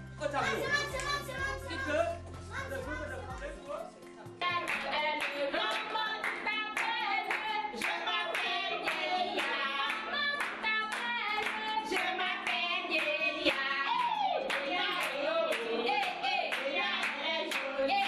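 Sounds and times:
rhythmic hand claps: 0.8s - 1.6s, 4.4s - 18.0s
person singing: 4.4s - 18.0s.

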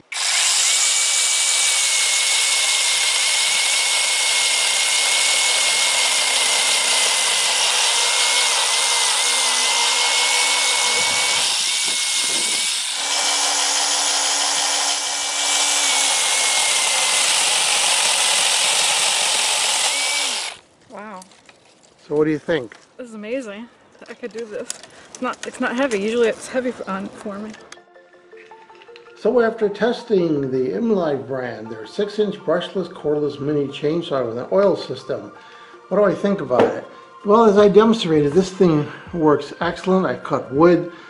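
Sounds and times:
chainsaw whining: 0.0s - 20.6s.

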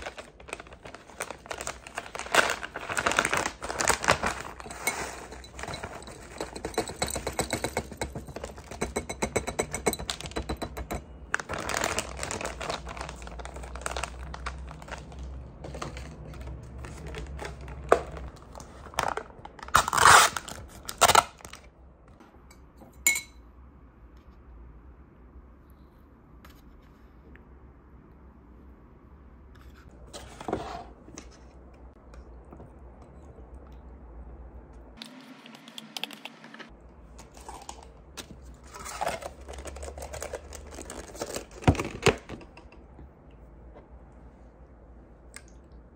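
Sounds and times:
bag crinkling: 0.0s - 6.0s, 11.3s - 18.3s
spoon clinking glass: 23.0s - 23.4s.

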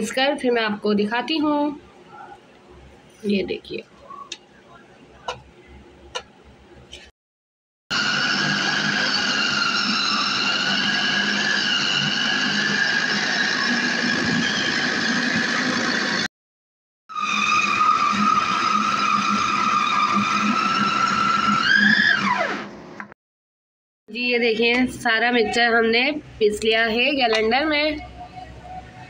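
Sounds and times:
food processor motor whining: 7.9s - 16.3s, 17.1s - 22.8s.

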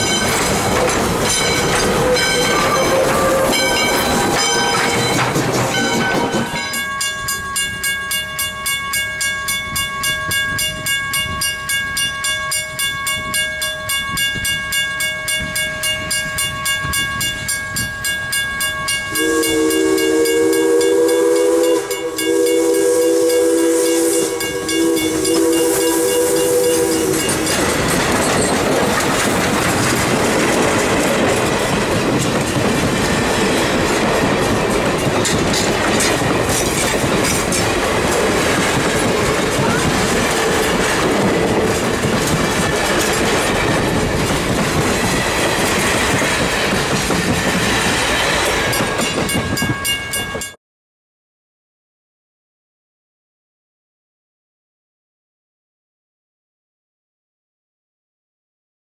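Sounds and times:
steam whistle chord: 0.0s - 5.1s, 18.8s - 27.8s
wheels clacking over rail joints: 0.0s - 7.0s, 26.8s - 49.8s
crossing bell ringing: 0.0s - 50.6s
train passing in a loud rush: 0.0s - 50.6s.

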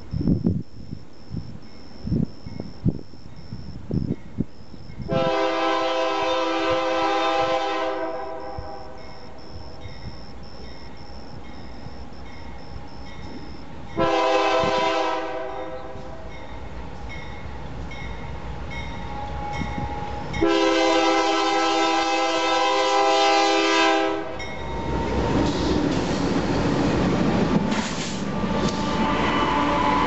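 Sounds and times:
diesel locomotive engine rumbling: 0.0s - 30.0s
locomotive air horn blasts: 5.1s - 9.1s, 14.0s - 16.3s, 19.1s - 24.4s, 28.5s - 30.0s
crossing bell ringing faintly: 15.6s - 20.6s, 24.4s - 25.3s.

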